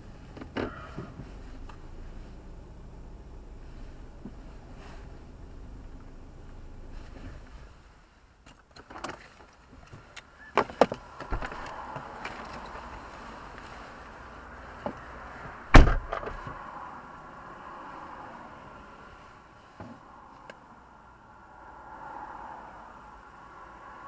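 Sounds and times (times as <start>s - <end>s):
car door clicks and clunks: 10.5s - 12.0s, 15.7s - 16.6s
car door slamming: 11.2s - 11.8s, 15.7s - 16.6s.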